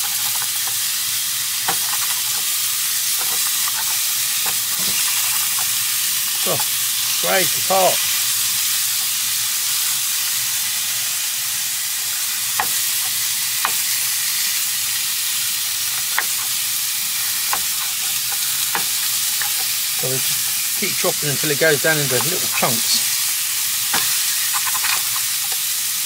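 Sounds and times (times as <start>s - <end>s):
chicken sizzling in a frying pan: 0.0s - 26.0s
spatula tapping and scraping pan: 1.7s - 2.5s, 12.6s - 14.0s, 16.0s - 16.6s, 17.3s - 19.8s, 22.1s - 23.0s, 23.9s - 25.6s.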